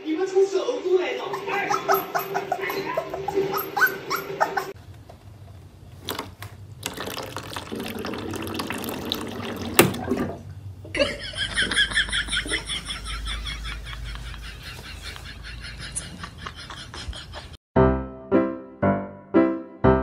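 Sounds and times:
water running from a tap: 0:06.8 - 0:10.4.

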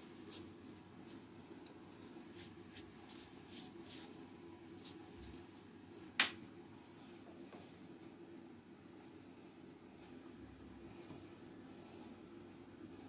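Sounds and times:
scratchy handling strokes: 0:00.0 - 0:01.3, 0:02.1 - 0:05.8
steady low hum: 0:00.0 - 0:13.0.

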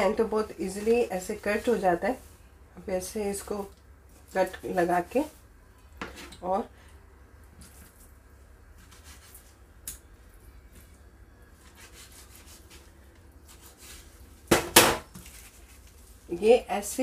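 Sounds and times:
knife scraping cutting board: 0:08.8 - 0:09.5, 0:11.6 - 0:12.9, 0:13.5 - 0:14.1.

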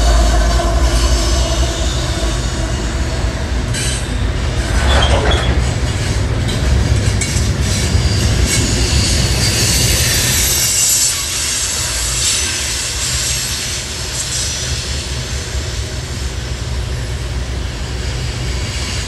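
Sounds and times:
high wheel squeal: 0:00.0 - 0:06.5
freight train rumbling: 0:00.0 - 0:19.0
wheel clatter over rail joints: 0:03.7 - 0:10.4.

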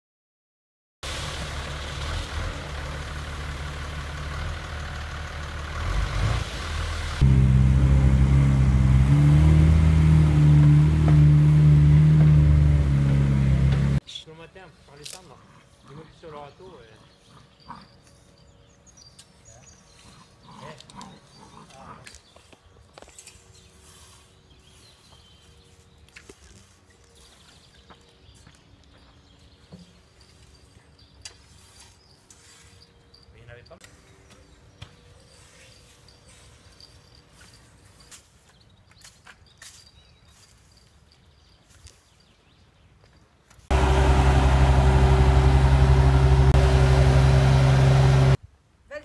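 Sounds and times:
truck diesel engine running: 0:01.1 - 0:14.0, 0:43.7 - 0:48.4
clicks and scrapes on gravel: 0:14.8 - 0:15.9, 0:19.2 - 0:27.9, 0:30.3 - 0:33.0.

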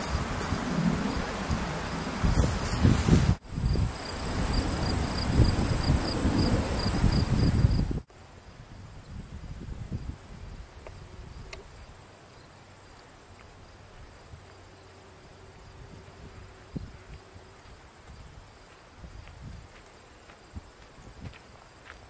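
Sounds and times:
insects trilling: 0:03.5 - 0:19.2.

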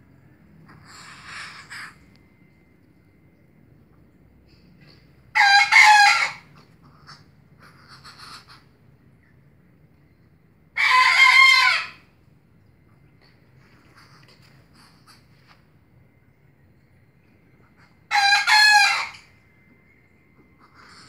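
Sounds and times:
rooster crowing: 0:05.3 - 0:06.5, 0:10.8 - 0:12.0, 0:18.1 - 0:19.6.

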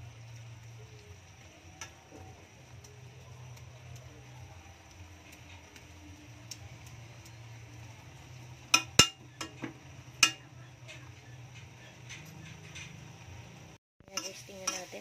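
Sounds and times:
spoon clinking against pan: 0:08.7 - 0:10.6, 0:14.1 - 0:15.0
spoon scraping a metal wok: 0:14.0 - 0:15.0.

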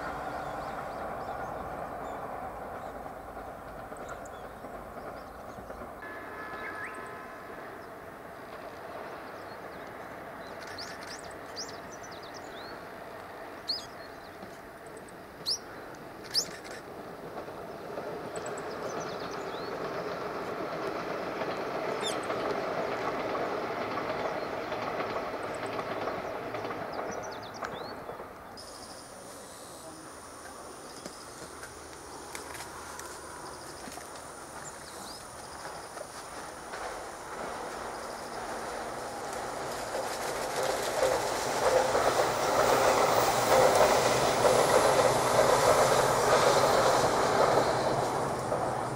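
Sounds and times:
distant electric train passing: 0:00.0 - 0:48.9.

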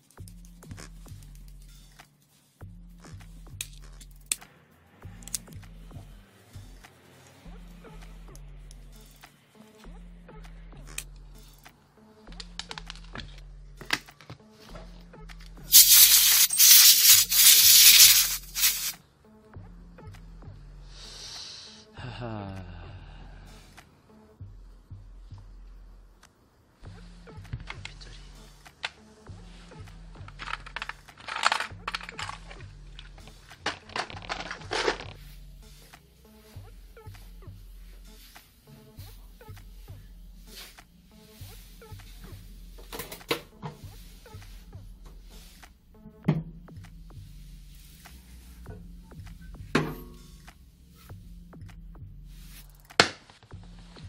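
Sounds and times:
quiet background music: 0:00.0 - 0:54.0
faint clicks of parts handled: 0:10.9 - 0:19.0, 0:27.5 - 0:29.1, 0:30.2 - 0:35.2
small metal parts clinking: 0:15.7 - 0:18.9, 0:30.3 - 0:32.6
compressed air blow gun hissing: 0:15.7 - 0:19.0, 0:21.0 - 0:21.8
rustling and clattering: 0:30.2 - 0:35.2.

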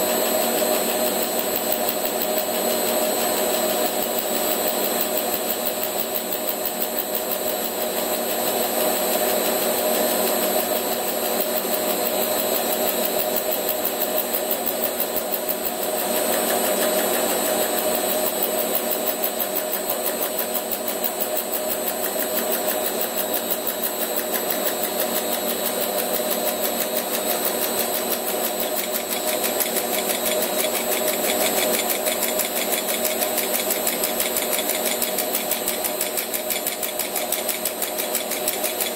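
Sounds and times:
lathe whining with pulsing: 0:00.0 - 0:38.9.

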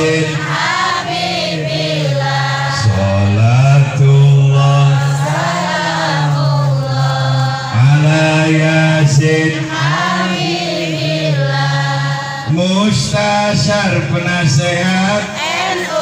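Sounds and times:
congregation singing: 0:00.0 - 0:16.0
man leading chanting: 0:00.0 - 0:16.0.

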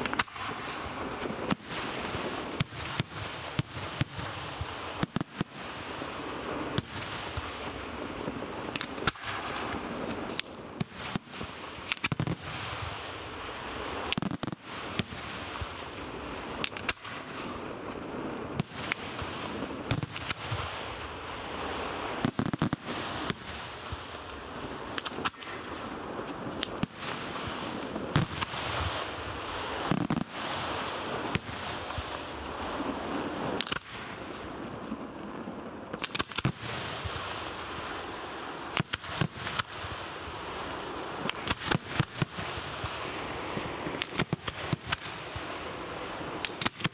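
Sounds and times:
smaller firework bursts: 0:00.0 - 0:46.9
firework shells bursting: 0:28.2 - 0:32.4, 0:33.6 - 0:34.2, 0:36.0 - 0:37.2, 0:41.2 - 0:43.0, 0:44.0 - 0:45.5, 0:46.4 - 0:46.9.

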